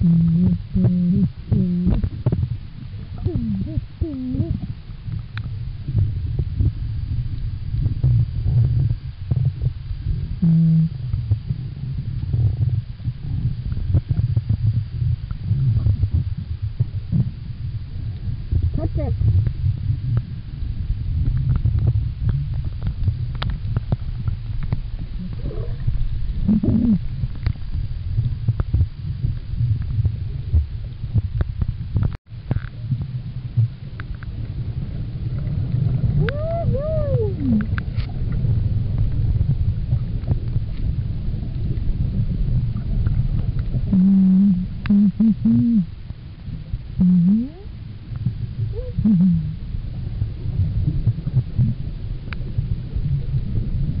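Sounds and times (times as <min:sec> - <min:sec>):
short low whale calls: 0:00.0 - 0:02.1, 0:10.4 - 0:11.0, 0:25.2 - 0:27.0, 0:36.1 - 0:37.7, 0:43.9 - 0:46.0, 0:47.0 - 0:47.8, 0:48.6 - 0:49.7
whale song moaning: 0:00.0 - 0:02.1, 0:03.2 - 0:04.7, 0:10.4 - 0:11.0, 0:25.1 - 0:27.1, 0:36.1 - 0:37.8, 0:43.9 - 0:45.9, 0:47.0 - 0:47.8, 0:48.6 - 0:49.8
underwater low rumble: 0:00.0 - 0:54.0.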